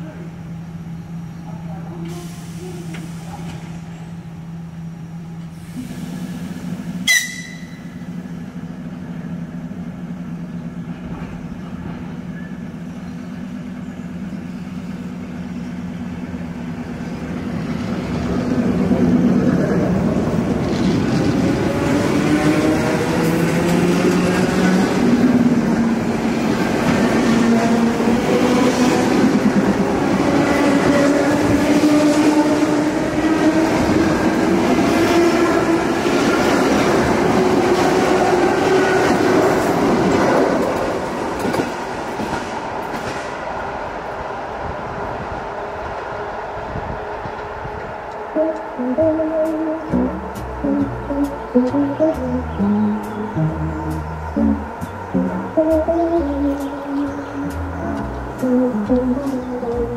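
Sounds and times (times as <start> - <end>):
electric train humming: 0.0 - 59.9
carriages rolling past: 47.0 - 59.9.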